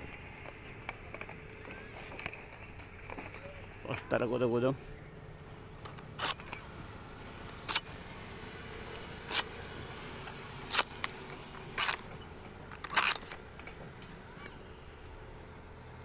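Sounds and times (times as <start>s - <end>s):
sickle cutting palm stalks: 5.8s - 15.1s.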